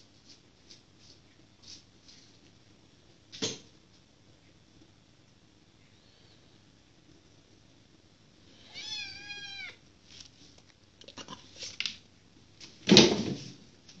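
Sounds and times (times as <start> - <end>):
faint scuffs and rustles: 0.0 - 2.6, 10.0 - 10.8
kitten meowing: 8.6 - 9.8.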